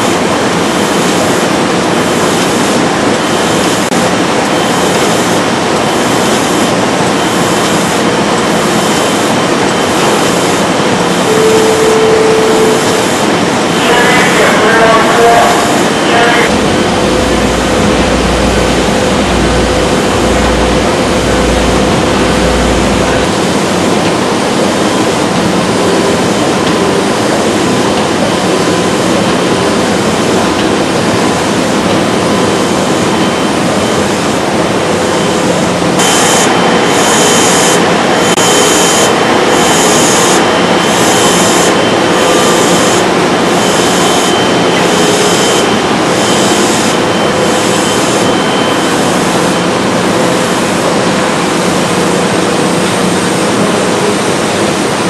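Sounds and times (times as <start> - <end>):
printing press running: 15.4 - 55.0.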